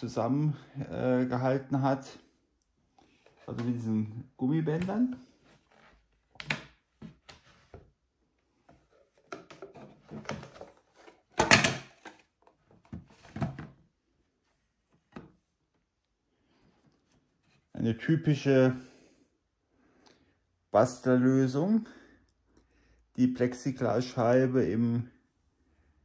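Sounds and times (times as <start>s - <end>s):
handling knocks and scrapes: 8.6s - 13.8s.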